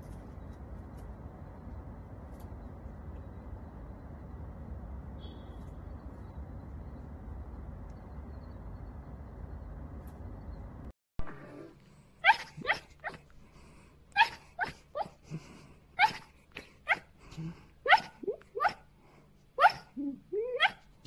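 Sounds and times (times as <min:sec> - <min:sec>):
dog yipping and whimpering: 0:12.2 - 0:13.2, 0:14.2 - 0:15.2, 0:16.0 - 0:16.3, 0:16.9 - 0:17.1, 0:17.9 - 0:18.8, 0:19.6 - 0:20.9.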